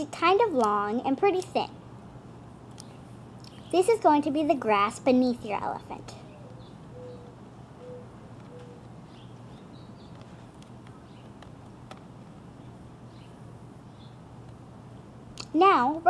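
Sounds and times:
steady low hum: 0.0 - 16.0
distant birds chirping: 1.8 - 4.0, 5.6 - 15.4
dove cooing: 6.2 - 8.8.

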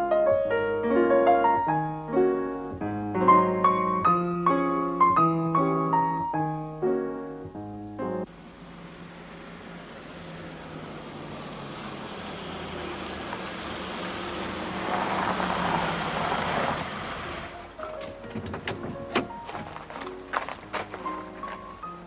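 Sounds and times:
passing vehicle engine: 8.3 - 18.4.

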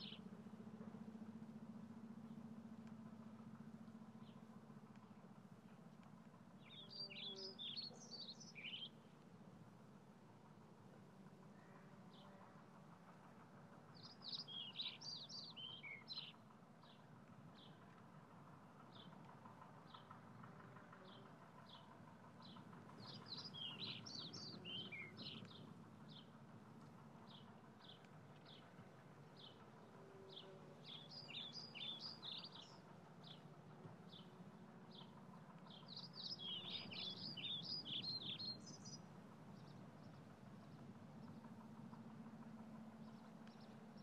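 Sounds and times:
songbird twittering: 6.6 - 9.0, 23.0 - 25.6, 30.3 - 33.4, 35.8 - 39.0.

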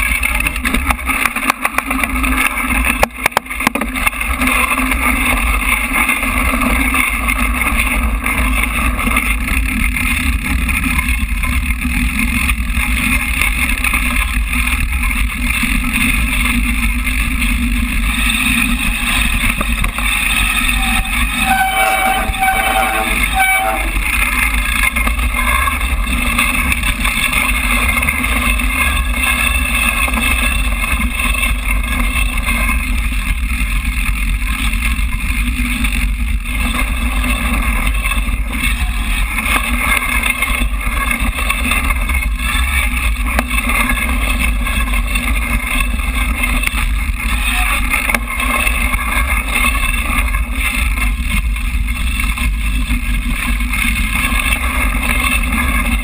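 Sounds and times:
muffled rumble of bike tyres: 0.0 - 56.0
short pulsing squeal: 20.0 - 24.2.

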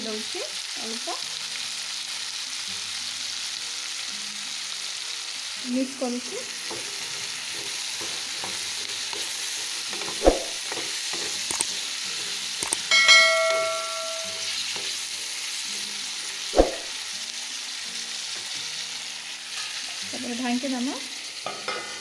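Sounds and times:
vegetables sizzling in oil: 0.0 - 22.0
short metallic ring: 12.9 - 14.5.

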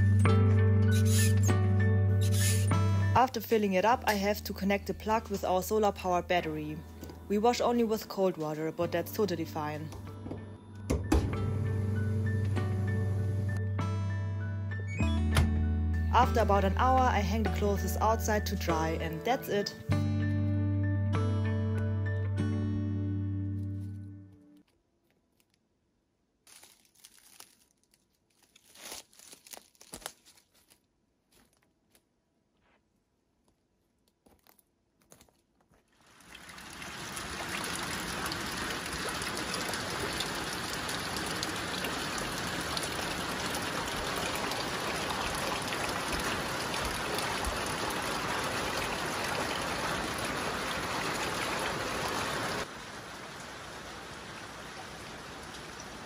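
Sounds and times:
steady rain falling: 36.0 - 56.0.

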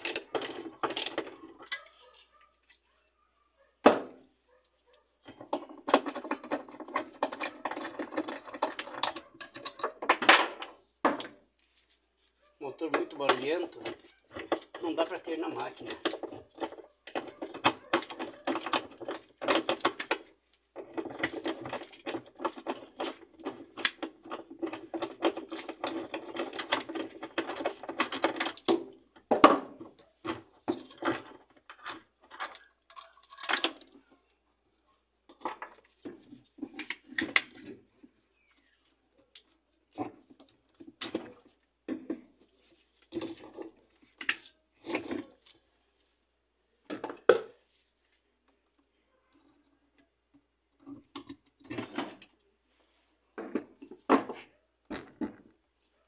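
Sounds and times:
metal parts clattering and knocking: 0.0 - 2.3, 5.2 - 11.4, 12.9 - 34.1, 43.0 - 45.6, 50.8 - 52.4.

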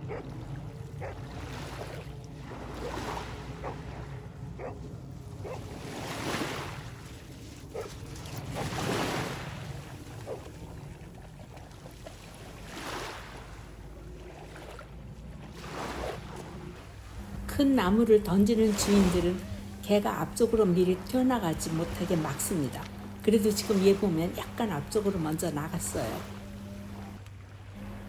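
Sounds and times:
small waves washing over rocks: 5.7 - 13.8.

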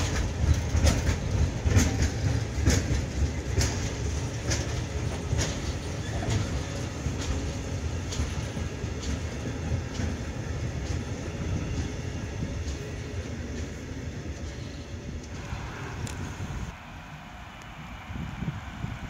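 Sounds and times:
wheels clicking over rail joints: 0.0 - 16.4
freight train rumbling past: 0.0 - 19.0.

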